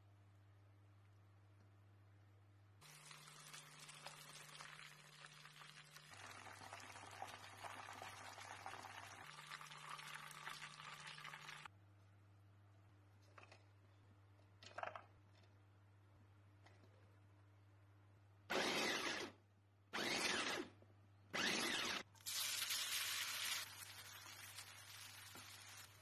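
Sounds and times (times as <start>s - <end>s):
chicken deep-frying in oil: 2.8s - 11.7s, 22.1s - 26.0s.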